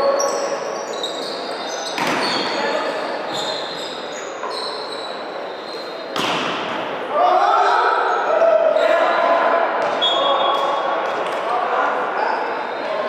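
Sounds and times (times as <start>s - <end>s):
shoe squeaks: 0.0s - 6.3s, 10.0s - 10.7s, 12.2s - 13.0s
murmur of crowd voices: 0.0s - 13.0s
volleyball impact: 6.2s - 6.8s.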